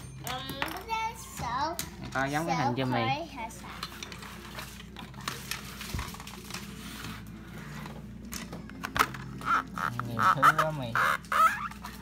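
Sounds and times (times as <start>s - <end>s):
cardboard packaging rustling: 4.3s - 8.2s.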